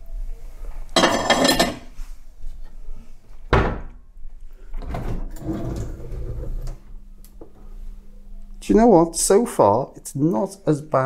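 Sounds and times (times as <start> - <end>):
kitchen clatter: 1.0 - 2.0
drawer pulled open with rattle: 4.8 - 6.8.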